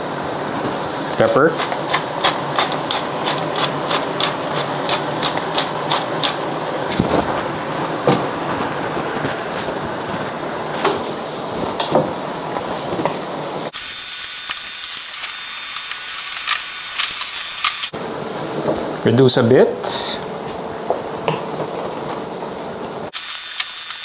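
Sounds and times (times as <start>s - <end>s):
pepper grinder clicking: 13.8s - 17.9s, 23.2s - 24.0s.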